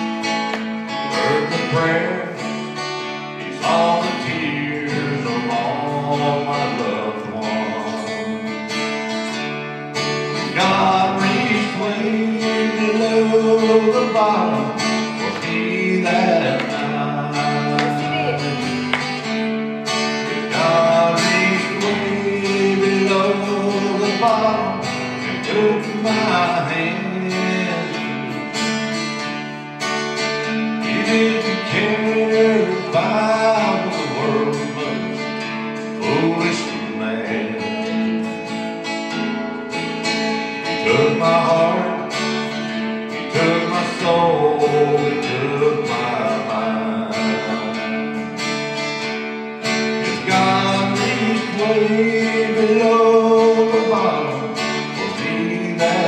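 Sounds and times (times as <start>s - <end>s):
strummed acoustic guitar: 0.0s - 56.0s
person singing: 1.1s - 8.9s, 10.3s - 19.2s, 20.2s - 28.6s, 30.8s - 38.5s, 40.8s - 42.5s, 43.2s - 48.1s, 50.0s - 56.0s.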